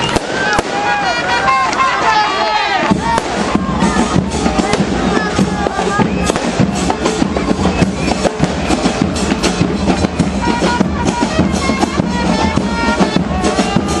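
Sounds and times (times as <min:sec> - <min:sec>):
bass drums with cymbals: 0:02.9 - 0:14.0.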